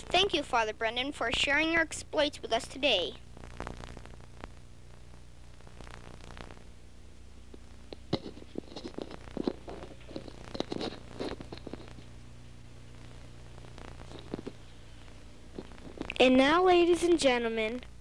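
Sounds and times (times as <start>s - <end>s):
low electrical hum: 0.0s - 18.0s
rustling: 7.6s - 16.2s.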